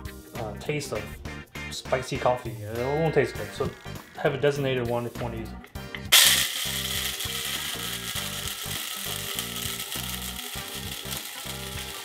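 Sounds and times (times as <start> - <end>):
blade grinder grinding peppercorns: 6.1 - 12.0.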